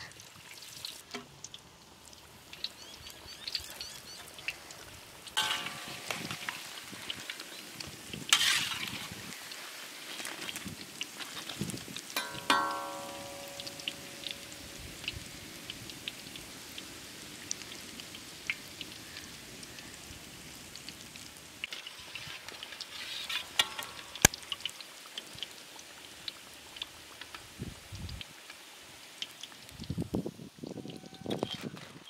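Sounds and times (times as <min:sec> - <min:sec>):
oil fizzing with crackles and pops: 0:00.0 - 0:32.0
metal clang ringing: 0:05.4 - 0:06.5, 0:12.2 - 0:14.6.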